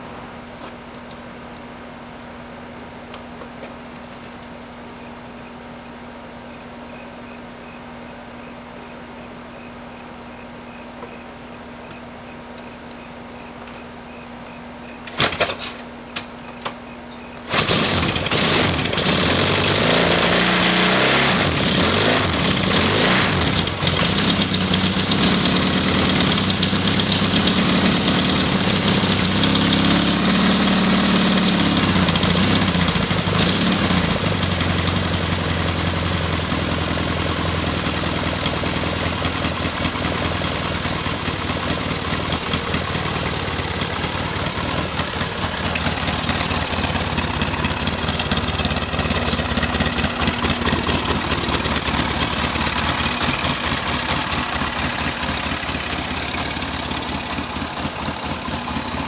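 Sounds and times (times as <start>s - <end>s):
engine starting and idling: 15.1s - 15.8s, 17.4s - 59.0s.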